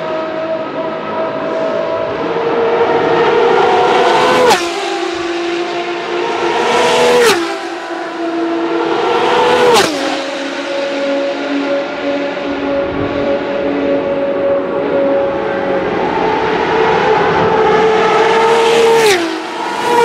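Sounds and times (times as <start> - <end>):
race cars passing at speed: 0.0 - 20.0.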